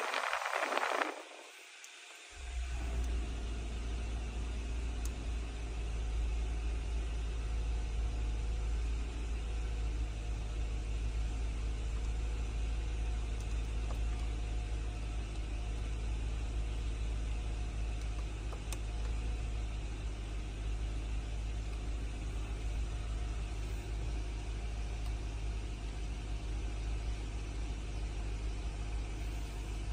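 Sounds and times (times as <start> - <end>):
climate-control fan blowing: 0.0 - 5.2
car engine idling: 2.2 - 29.9.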